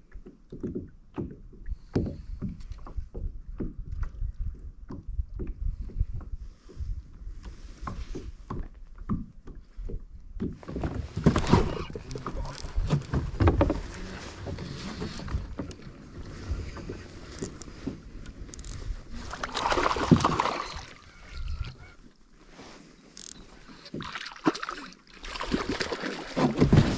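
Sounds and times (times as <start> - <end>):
water lapping against kayak hull: 0.0 - 26.9
water sloshing and splashing: 7.4 - 26.9.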